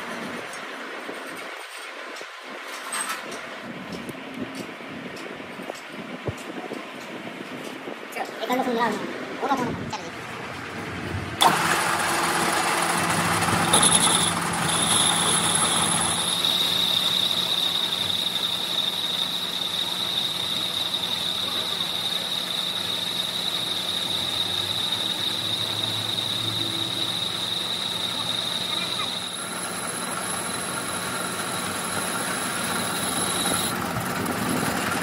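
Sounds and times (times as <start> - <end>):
metal lathe hum: 11.4 - 35.0
high whine: 12.3 - 35.0.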